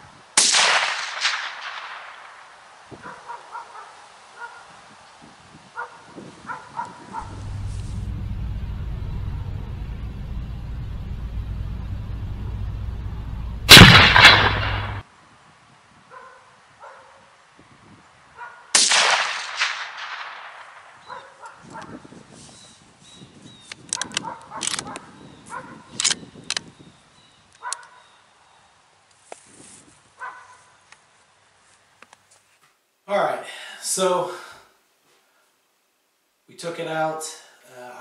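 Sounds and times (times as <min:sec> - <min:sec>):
rifle shots with echo: 0:00.4 - 0:02.5, 0:13.7 - 0:15.0, 0:18.8 - 0:21.1
metallic clicks of rifle bolt: 0:23.6 - 0:25.0, 0:26.0 - 0:26.7.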